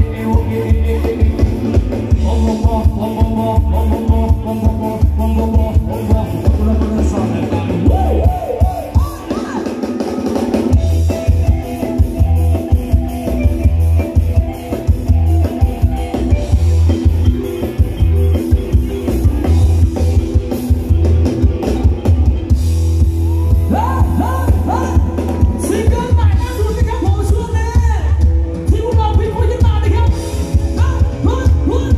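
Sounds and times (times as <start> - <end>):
heavy bass line: 0.0 - 9.3, 10.4 - 31.9
person singing: 0.0 - 10.3
drum kit beat: 0.0 - 31.9
live band dance music: 0.0 - 31.9.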